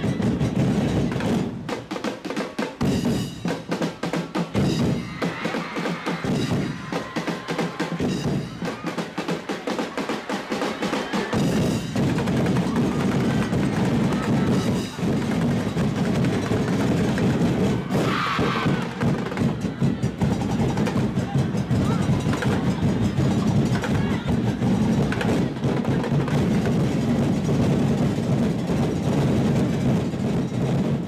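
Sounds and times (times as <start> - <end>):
percussion ensemble drumming: 0.0 - 31.0
rapid sharp drum strikes: 0.0 - 31.0.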